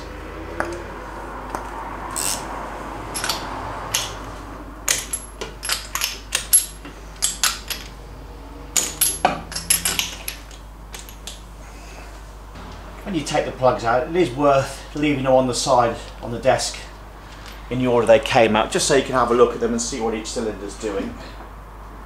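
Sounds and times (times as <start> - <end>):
metallic clicks of spark plugs: 3.2 - 4.2.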